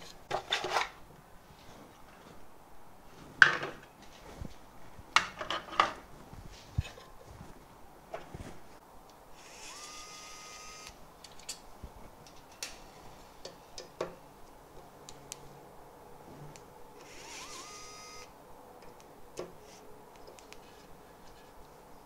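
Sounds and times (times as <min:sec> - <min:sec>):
electric screwdriver motor whirring: 0:09.4 - 0:11.0, 0:17.0 - 0:18.3.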